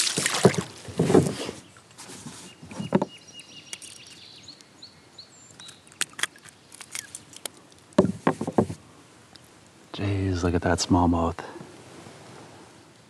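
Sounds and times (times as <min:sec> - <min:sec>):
sharp clicks and knocks: 0:06.9 - 0:08.8.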